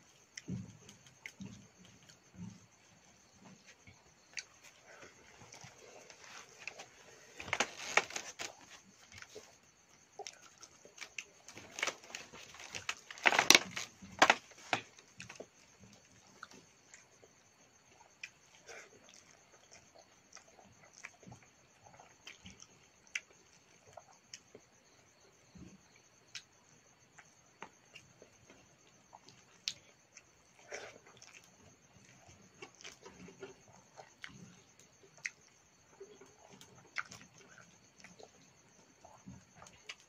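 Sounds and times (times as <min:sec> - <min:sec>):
insects chirring: 0:00.0 - 0:40.0
chewing and lip-smacking: 0:17.9 - 0:24.6, 0:27.2 - 0:40.0.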